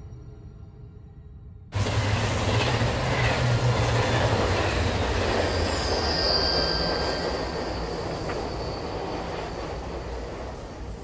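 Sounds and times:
subway train rumble: 0.0 - 11.0
high wheel squeal: 4.0 - 10.2.

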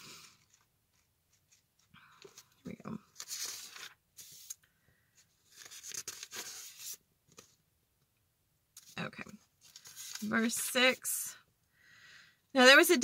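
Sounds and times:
pages rustling: 0.2 - 4.6, 5.4 - 7.6, 8.8 - 10.7.

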